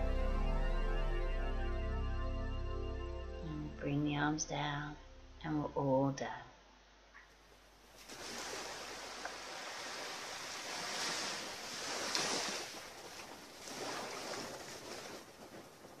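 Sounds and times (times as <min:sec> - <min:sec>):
small waves lapping on shore: 0:07.9 - 0:16.0.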